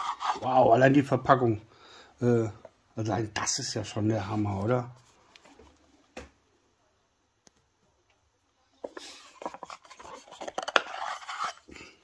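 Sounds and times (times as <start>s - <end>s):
wood scraping and rubbing: 0.0s - 0.6s, 8.9s - 11.7s.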